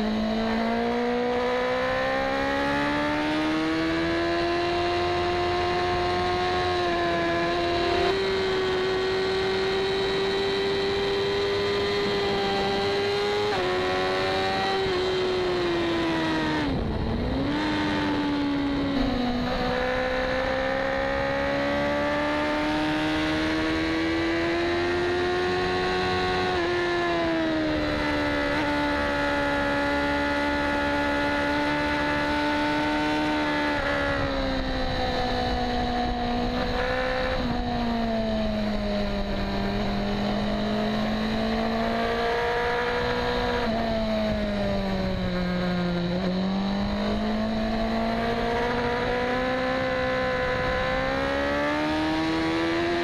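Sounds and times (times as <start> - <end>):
motorcycle engine at high revs: 0.0 - 53.0
wind rush: 14.5 - 20.4.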